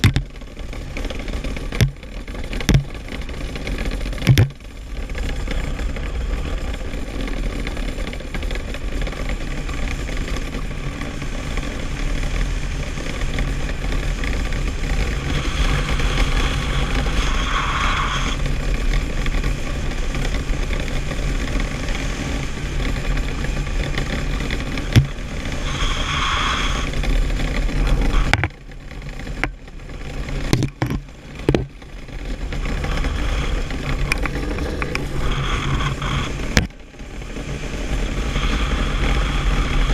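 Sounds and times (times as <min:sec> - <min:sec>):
sharp knocks: 0:00.0 - 0:00.2, 0:02.6 - 0:02.9
iceboat runners rumbling over ice: 0:00.0 - 0:39.9
wind on microphone: 0:30.5 - 0:39.9.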